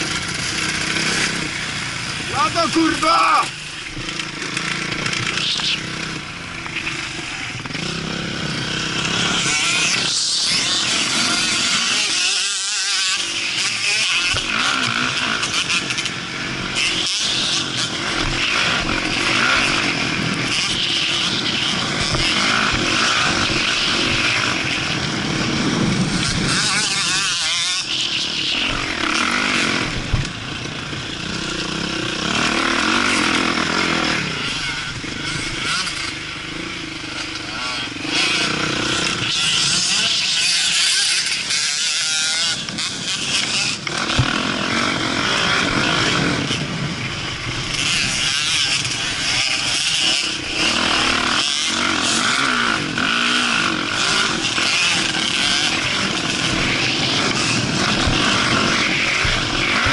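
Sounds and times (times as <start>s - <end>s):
motocross bike engine revving: 0.0s - 59.9s
wind noise on microphone: 22.7s - 27.3s.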